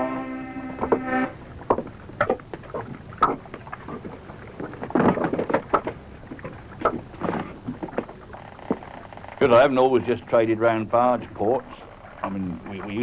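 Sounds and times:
low steady hiss: 0.0 - 13.0
irregular knocks and clatters: 1.6 - 9.4.

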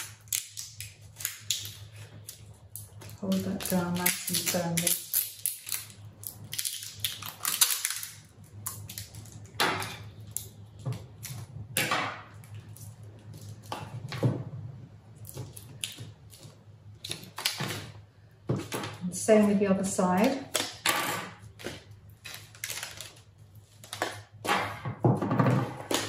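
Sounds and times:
paper and foil crackling: 0.0 - 11.3, 21.4 - 24.4.

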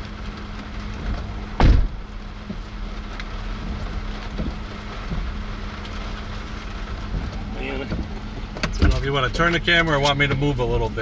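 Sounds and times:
vehicle idling hum: 0.0 - 11.0
heavy thump: 1.6 - 2.1.

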